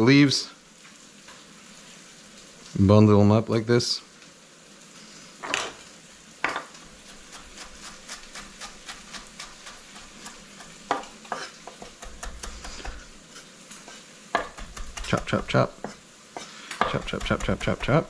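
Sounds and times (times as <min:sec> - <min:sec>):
vegetables sizzling in pan: 0:00.0 - 0:18.0
knife chopping on wooden board: 0:06.5 - 0:13.2, 0:14.3 - 0:18.0.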